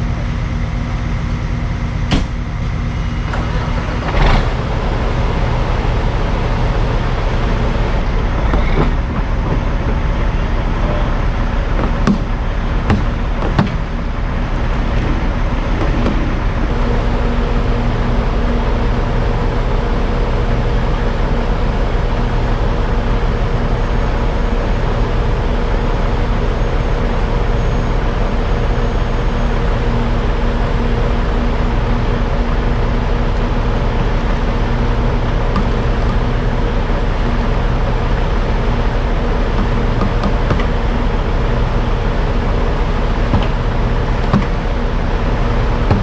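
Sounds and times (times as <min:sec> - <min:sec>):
diesel truck engine running: 0:00.0 - 0:46.0
sharp clicks and knocks: 0:11.8 - 0:13.9, 0:35.2 - 0:36.4, 0:39.5 - 0:40.8, 0:43.3 - 0:44.6.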